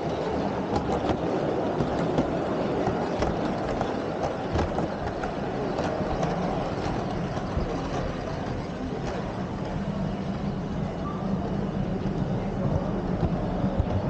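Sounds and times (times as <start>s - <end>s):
model train wheels clicking: 0.0s - 11.0s
background murmur: 0.0s - 14.0s.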